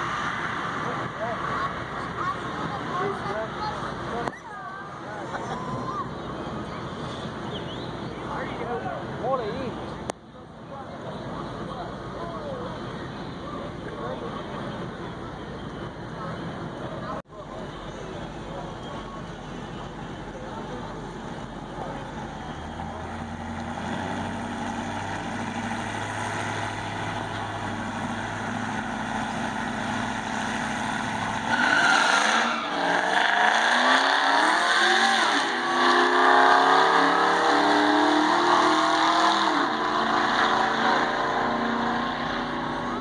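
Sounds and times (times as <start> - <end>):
diesel truck engine revving: 19.8 - 43.0.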